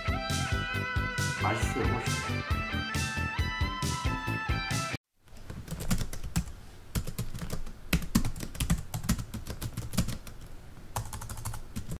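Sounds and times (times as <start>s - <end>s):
computer keyboard typing: 5.4s - 11.9s.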